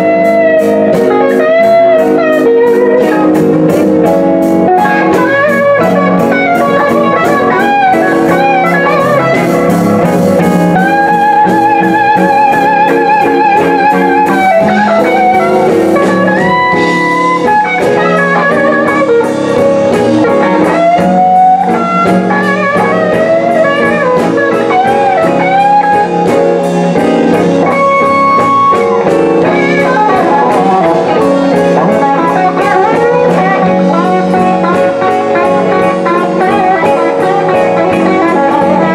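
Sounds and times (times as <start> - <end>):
blues band playing: 0.0 - 38.9
electric guitar lead with bent notes: 0.0 - 38.9.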